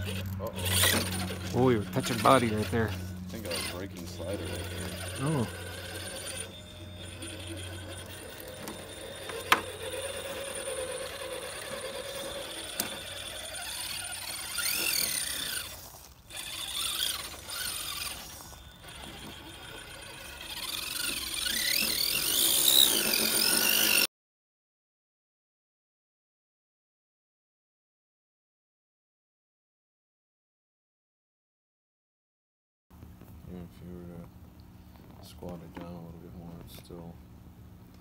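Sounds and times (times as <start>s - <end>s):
motor and gears whining: 0.0s - 24.1s.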